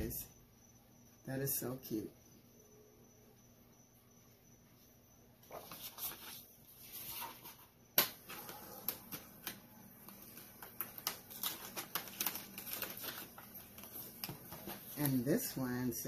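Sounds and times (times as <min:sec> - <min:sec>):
paper and plastic rustling: 0:05.5 - 0:07.6, 0:08.3 - 0:15.6.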